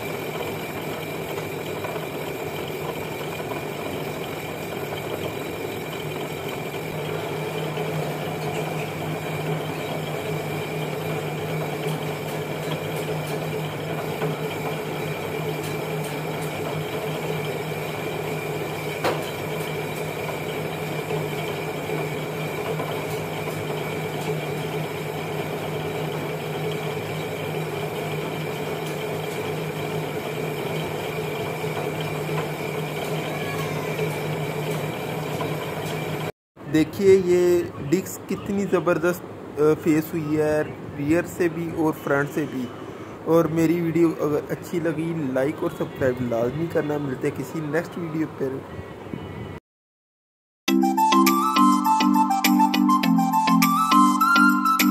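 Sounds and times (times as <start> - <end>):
metal lathe humming with whine: 0.0 - 36.3.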